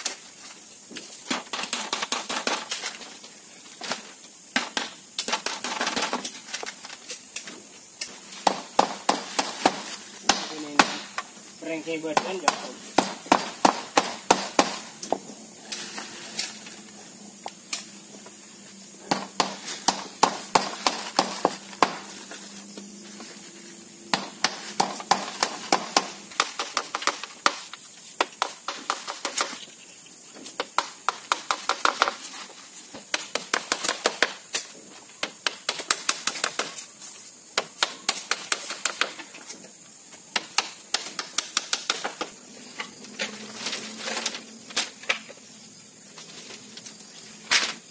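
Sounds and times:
hammer tapping nails into bamboo: 40.3 - 42.3.

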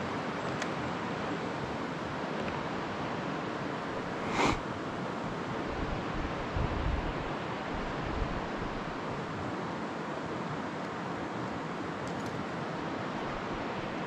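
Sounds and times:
wind on microphone: 4.0 - 4.6, 5.7 - 8.9.

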